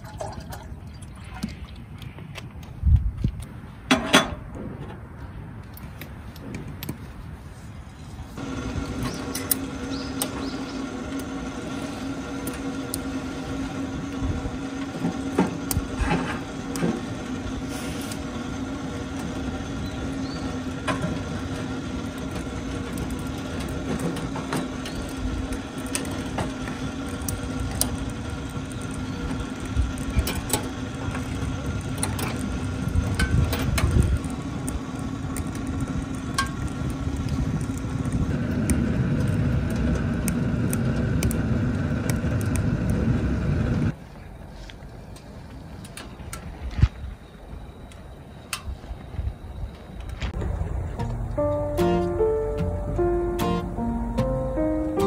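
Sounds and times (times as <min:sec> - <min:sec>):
wood fire crackling and popping: 0:20.6 - 0:44.0
steady low hum: 0:49.4 - 0:55.0.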